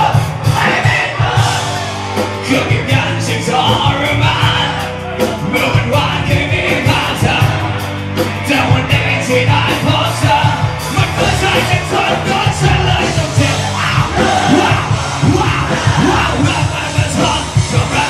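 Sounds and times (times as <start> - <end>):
drum hits: 0.0 - 3.1
crowd yelling and singing: 0.0 - 18.0
live rock band playing: 0.0 - 18.0
person singing: 0.0 - 18.0.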